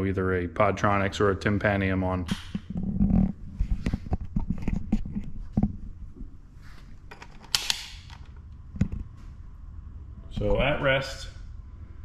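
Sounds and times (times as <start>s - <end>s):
sharp handling clicks and knocks: 7.0s - 9.1s.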